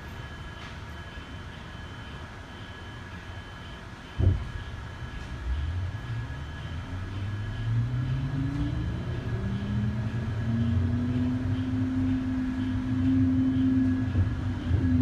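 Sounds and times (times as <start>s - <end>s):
low hum: 4.2s - 15.0s.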